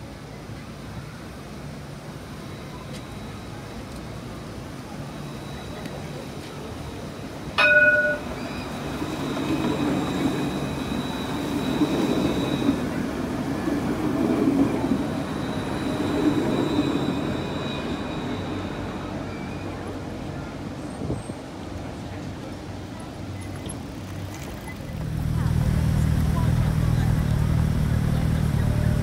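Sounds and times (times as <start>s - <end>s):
tram rumbling past: 0.0s - 29.0s
short bright ding: 7.6s - 8.4s
high wheel squeal: 7.6s - 21.4s.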